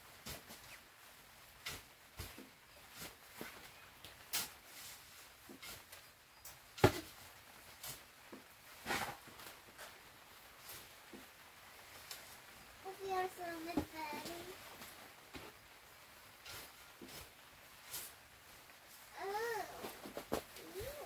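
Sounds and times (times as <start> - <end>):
shovel scraping soil: 1.6 - 3.6, 4.2 - 6.1, 8.8 - 9.9, 16.4 - 18.2.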